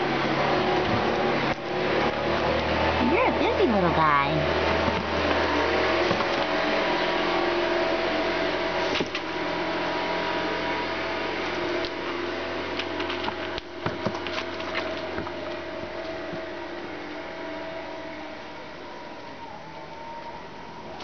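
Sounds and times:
steady mechanical hum: 0:00.0 - 0:21.0.

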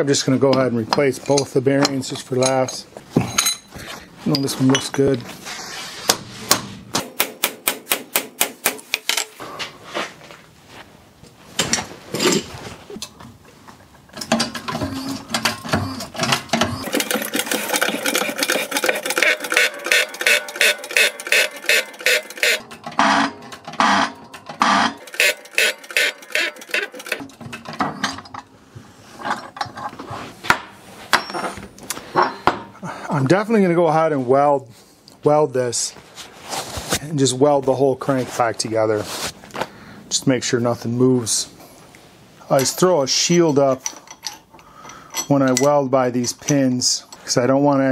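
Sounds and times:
steel tools clanking: 0:00.5 - 0:05.1, 0:14.1 - 0:28.5, 0:31.1 - 0:32.7
rapid metallic ratchet clicking: 0:16.8 - 0:22.7, 0:23.9 - 0:27.3.

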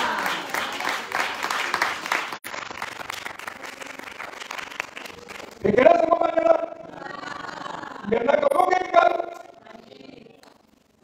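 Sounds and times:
congregation clapping: 0:00.0 - 0:06.1.

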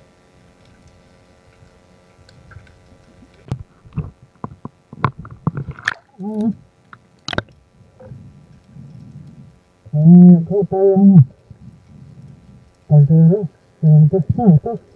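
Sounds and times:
water sloshing and gurgling: 0:01.5 - 0:09.5
sharp knocks and splashes: 0:05.0 - 0:06.2
faint low rumble: 0:06.0 - 0:14.9.

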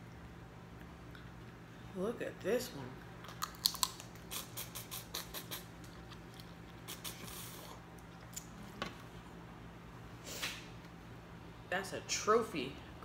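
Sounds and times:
crawfish shell cracking: 0:03.2 - 0:04.2.

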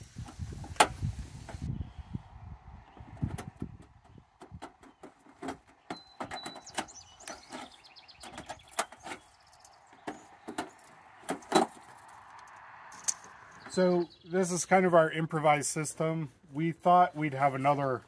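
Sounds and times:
plastic filter squeaking: 0:04.5 - 0:11.8.

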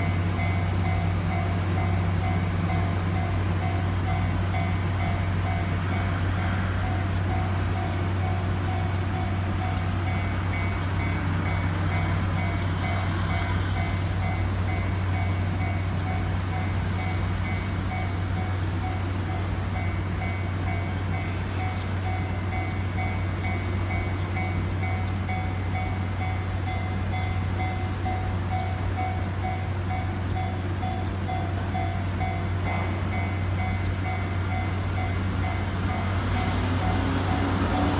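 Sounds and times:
level crossing warning bell: 0:00.0 - 0:37.9
vehicle engine approaching: 0:33.8 - 0:37.9.

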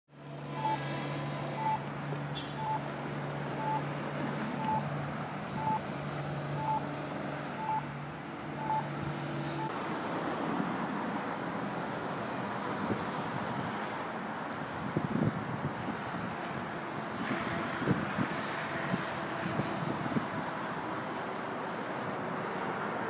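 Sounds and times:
short high electronic beeps: 0:00.6 - 0:00.8, 0:01.6 - 0:01.8, 0:02.6 - 0:02.8, 0:03.6 - 0:03.8, 0:04.6 - 0:04.9, 0:05.6 - 0:05.8, 0:06.6 - 0:06.8, 0:07.6 - 0:07.8, 0:08.6 - 0:08.9
wind noise on microphone: 0:12.8 - 0:20.8.

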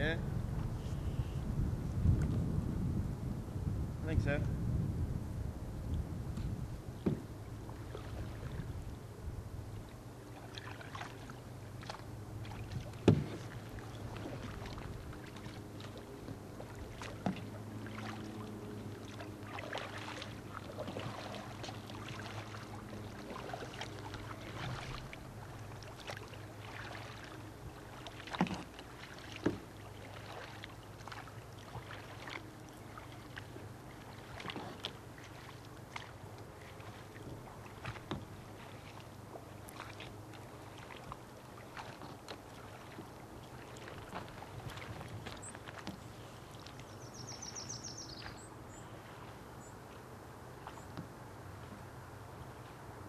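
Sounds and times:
kayak paddle in water: 0:00.0 - 0:53.0
sharp paddle knocks: 0:07.0 - 0:07.3, 0:13.0 - 0:13.4.

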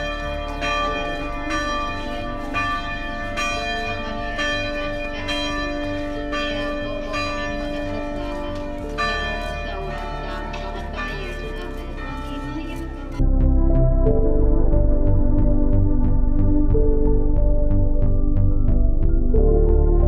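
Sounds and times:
church bells ringing: 0:00.0 - 0:13.3.

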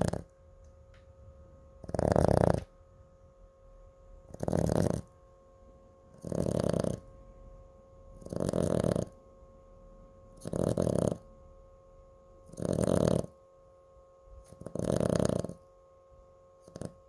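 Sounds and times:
dog snoring: 0:00.0 - 0:00.3, 0:01.8 - 0:02.7, 0:04.2 - 0:05.2, 0:06.1 - 0:07.2, 0:08.1 - 0:09.2, 0:10.4 - 0:11.3, 0:12.4 - 0:13.4, 0:14.4 - 0:15.7, 0:16.6 - 0:17.0.

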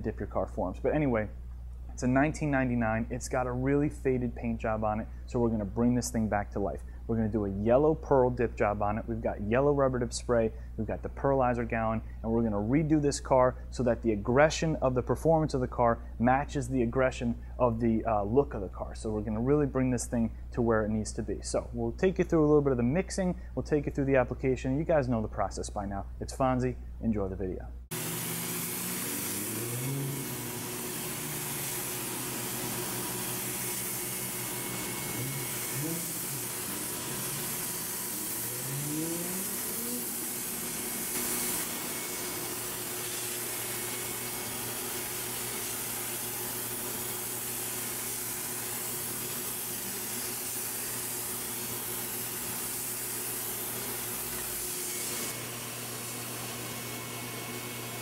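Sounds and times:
faint steady mechanical hum: 0:00.0 - 0:28.0
spray gun air rushing: 0:28.2 - 0:46.3.

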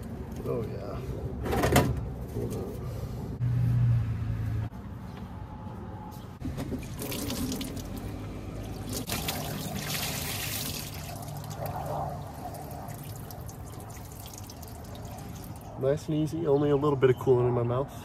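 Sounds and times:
liquid pouring into plastic pan: 0:06.8 - 0:08.0.

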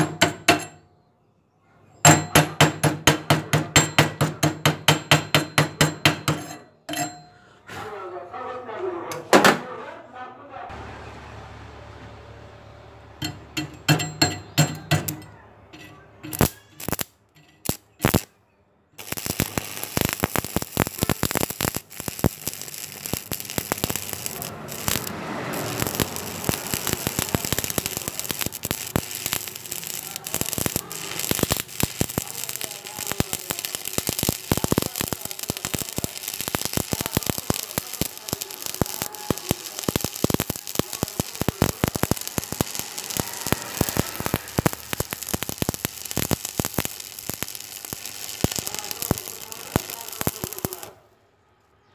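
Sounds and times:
welding arc crackling: 0:15.8 - 0:18.3, 0:19.0 - 0:51.0.

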